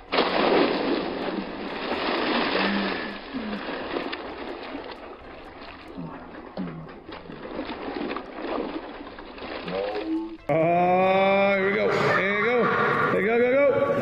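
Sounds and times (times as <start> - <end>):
loud splash into pool: 0.0 - 3.2
water sloshing and churning: 0.0 - 13.2.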